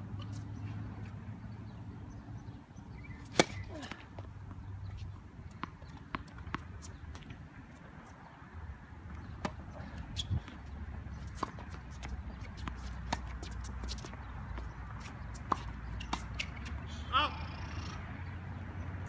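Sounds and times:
tennis ball bouncing: 0:03.0 - 0:07.6, 0:09.0 - 0:16.9
shoes scuffing the court: 0:03.1 - 0:08.4, 0:09.1 - 0:16.9
rackets striking tennis ball: 0:03.3 - 0:04.1.

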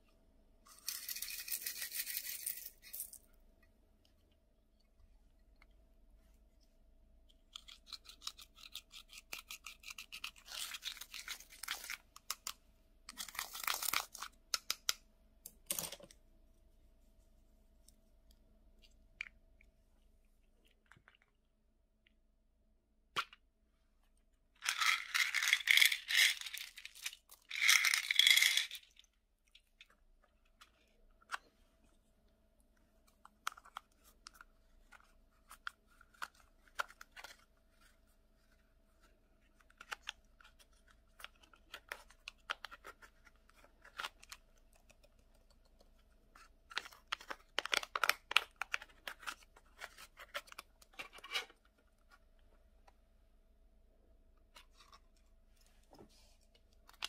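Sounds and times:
plastic beads clattering: 0:24.6 - 0:29.0.

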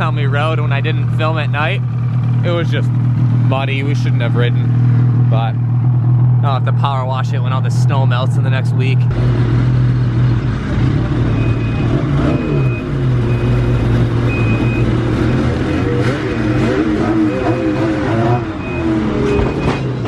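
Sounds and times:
snowmobile engine at low revs: 0:00.0 - 0:20.0
reverse warning beeps: 0:11.4 - 0:15.4, 0:16.4 - 0:20.0.

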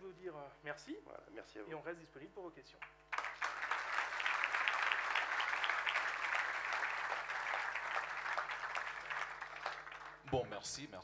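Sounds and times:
audience applauding: 0:03.1 - 0:10.4.

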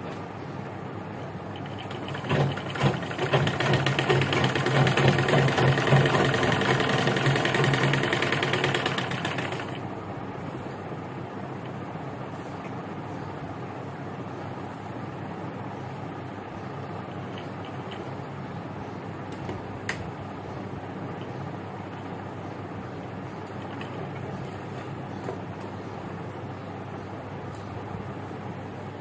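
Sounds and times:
sewing machine running: 0:01.6 - 0:09.8.

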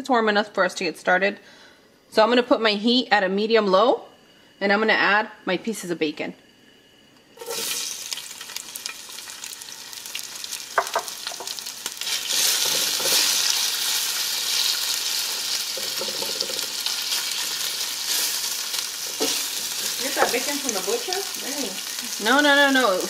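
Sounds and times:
bacon sizzling in oil: 0:07.4 - 0:23.0.

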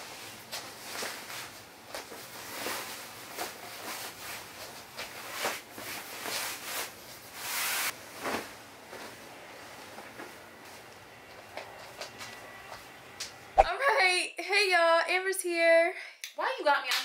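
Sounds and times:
bedsheets rustling: 0:00.0 - 0:12.8.

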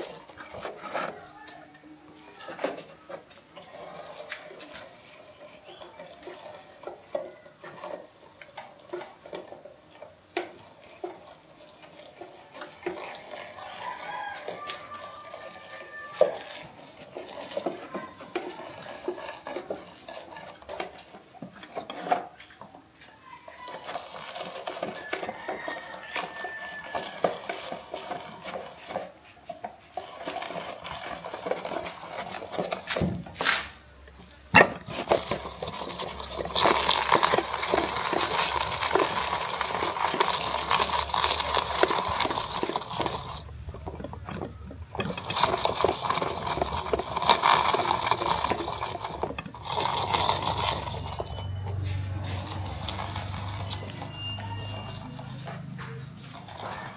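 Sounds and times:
utensils clinking against pots: 0:34.5 - 0:56.9.

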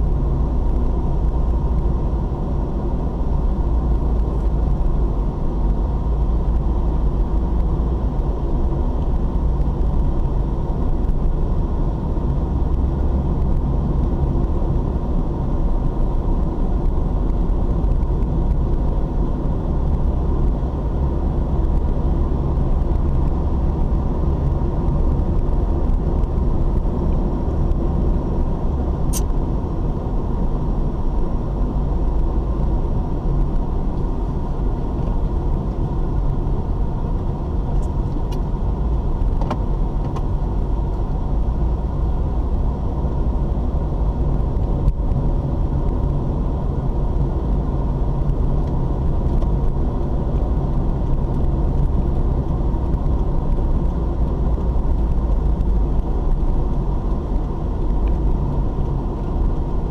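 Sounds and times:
car engine and tyre noise: 0:00.0 - 0:59.9
sharp click: 0:29.1 - 0:29.3.

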